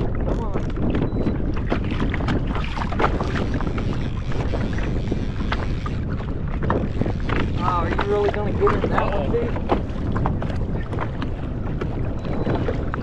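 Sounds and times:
water splashing against kayak hull: 0.0 - 13.0
wind on microphone: 0.0 - 13.0.

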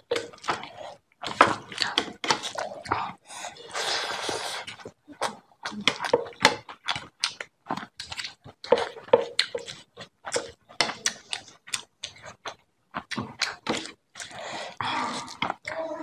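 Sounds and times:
open-mouth chewing with wet smacks: 4.2 - 14.4.

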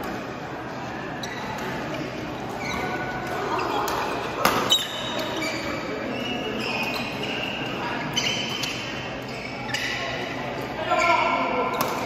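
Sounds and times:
shoes squeaking on court: 1.0 - 12.0
racket striking shuttlecock: 3.8 - 5.3, 11.8 - 12.0.

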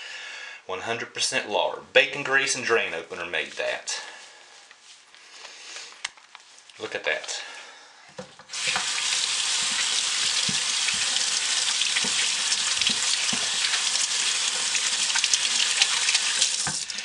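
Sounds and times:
faucet turned on: 8.5 - 17.0
tap water running over hands: 8.5 - 17.0.

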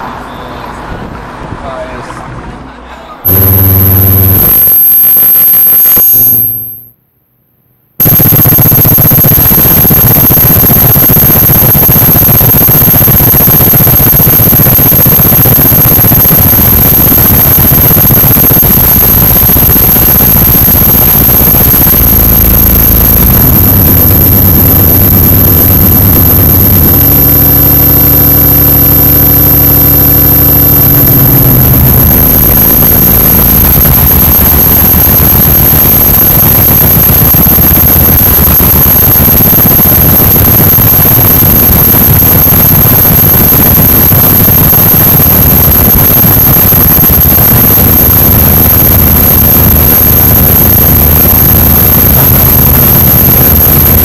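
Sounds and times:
high steady whine: 3.2 - 7.0, 8.0 - 54.0.

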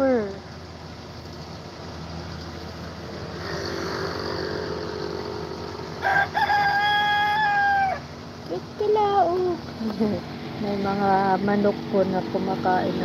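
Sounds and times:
combine harvester humming: 0.0 - 13.0
rooster crowing: 5.9 - 8.1.

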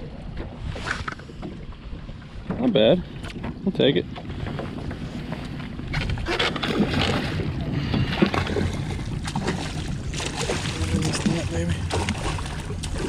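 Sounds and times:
fish thrashing water splashing: 8.1 - 13.0.

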